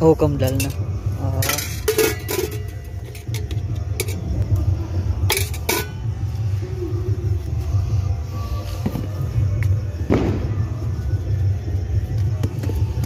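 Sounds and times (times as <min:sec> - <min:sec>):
steel utensils clinking on pots: 0:00.4 - 0:04.2, 0:05.3 - 0:06.0.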